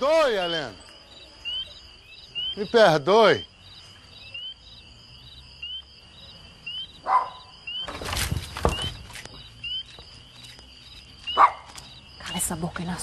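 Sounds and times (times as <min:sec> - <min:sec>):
crickets chirping: 0:00.0 - 0:13.0
dog barking: 0:07.0 - 0:07.5, 0:11.4 - 0:11.7
rattling clatter with knocks: 0:07.8 - 0:09.4.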